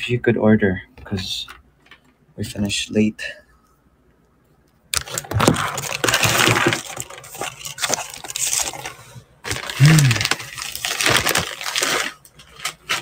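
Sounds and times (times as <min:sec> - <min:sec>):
paper bag rustling: 0:05.0 - 0:13.0
person humming: 0:09.8 - 0:10.3.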